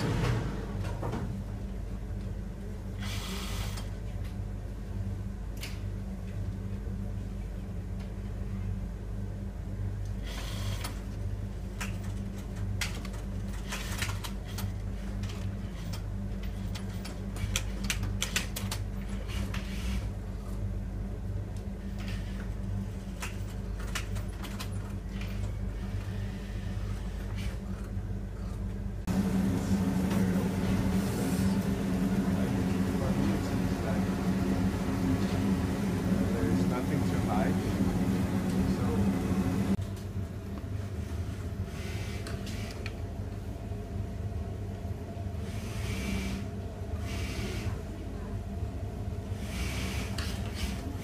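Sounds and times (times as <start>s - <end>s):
steam pressing table hum and rush: 2.9s - 4.1s, 29.1s - 39.8s, 45.3s - 48.3s, 49.2s - 51.0s
sewing machines clicking and rattling: 10.2s - 20.2s, 21.8s - 28.5s, 49.4s - 51.0s
sewing machine motor hum: 29.1s - 39.8s, 45.4s - 47.8s, 49.4s - 51.0s.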